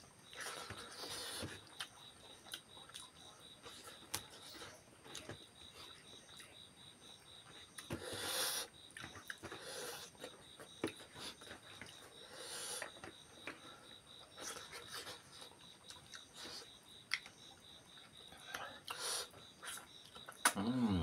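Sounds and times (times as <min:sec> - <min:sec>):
insect chirping in pulses: 0:00.0 - 0:21.0
wet chewing and mouth clicks: 0:00.3 - 0:06.6, 0:14.4 - 0:17.4.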